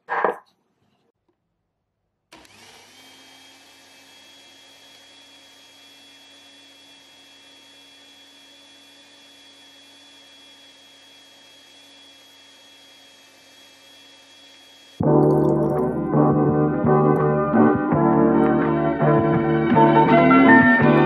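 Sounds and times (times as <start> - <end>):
blender humming: 2.3 - 15.8
piano background music: 15.0 - 21.0.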